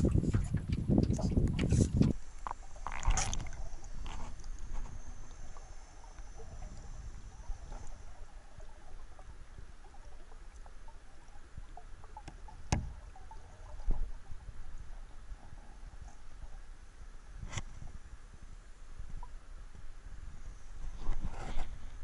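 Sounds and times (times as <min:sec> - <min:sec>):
muffled underwater rumble: 0:00.0 - 0:22.0.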